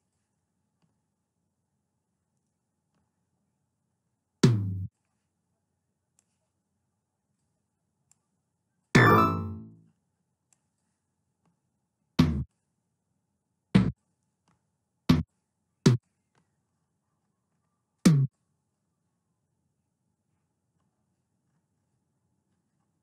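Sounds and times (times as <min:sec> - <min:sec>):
drum machine tom hits: 0:09.0 - 0:09.6.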